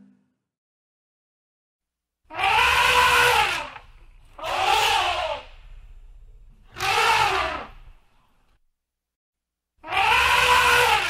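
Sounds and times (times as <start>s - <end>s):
elephant trumpeting: 2.3s - 5.8s, 6.6s - 8.0s, 9.8s - 11.0s
low rumble: 5.4s - 6.8s.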